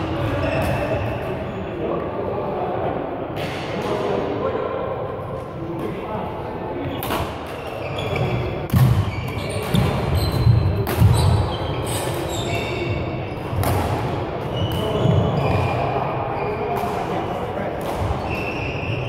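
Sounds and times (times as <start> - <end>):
shoes squeaking on court: 6.9 - 13.6, 18.0 - 19.0.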